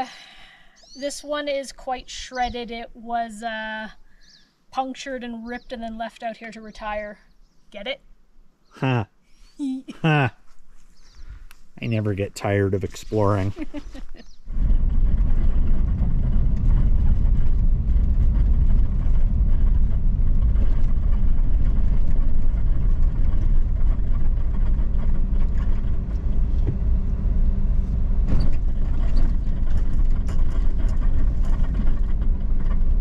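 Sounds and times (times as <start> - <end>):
pickup engine and tyres rumbling: 10.9 - 33.0.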